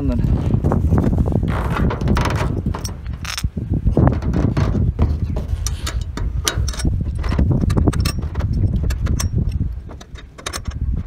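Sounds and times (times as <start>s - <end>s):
footsteps on metal roof: 0.0s - 11.0s
steady low rumble: 0.0s - 11.0s
metal clamps clicking: 5.4s - 11.0s.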